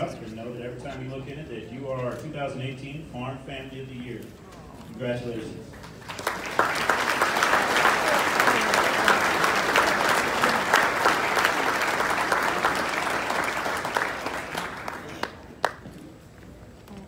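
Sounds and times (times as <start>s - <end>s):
audience applauding: 5.7s - 15.9s.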